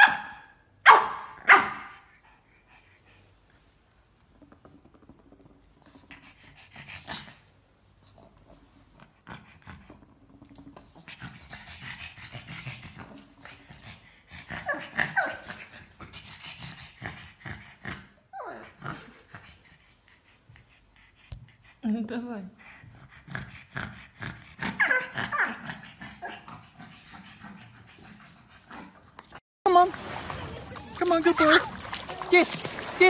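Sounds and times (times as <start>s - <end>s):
dog panting: 5.8s - 29.4s.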